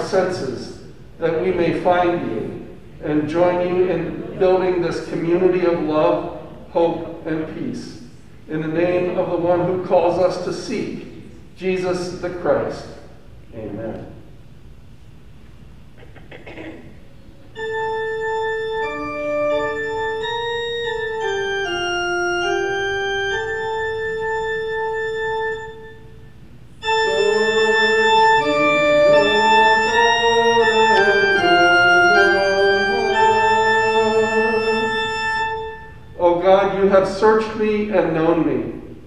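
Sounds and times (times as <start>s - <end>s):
organ playing a hymn: 0.0s - 13.2s, 17.5s - 39.0s.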